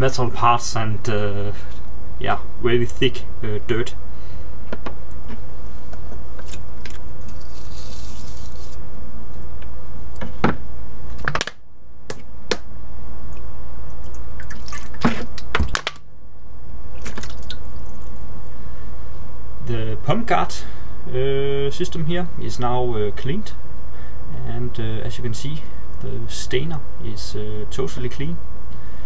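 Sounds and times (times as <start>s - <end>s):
steady low hum: 0.0s - 29.0s
water splashing in a plastic tub: 14.0s - 15.8s, 16.9s - 18.2s.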